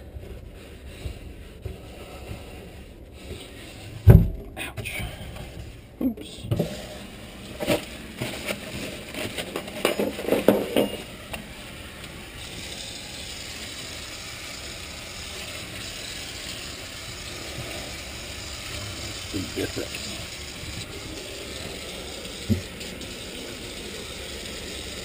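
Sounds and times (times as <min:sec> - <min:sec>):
kitchen faucet running: 0:10.8 - 0:25.0.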